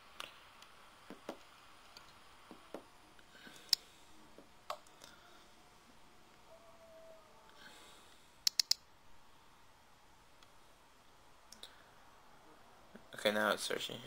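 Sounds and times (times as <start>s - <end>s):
touchscreen keyboard clicks: 8.4s - 8.8s.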